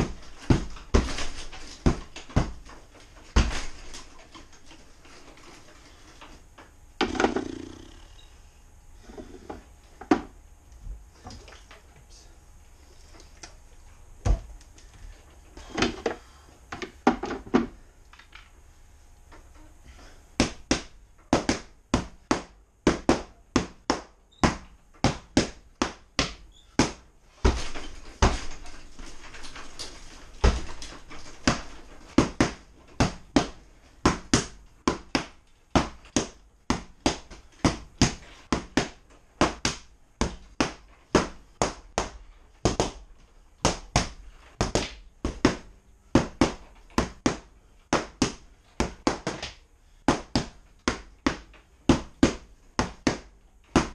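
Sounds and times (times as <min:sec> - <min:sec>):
punching bag being struck: 0:00.0 - 0:02.7.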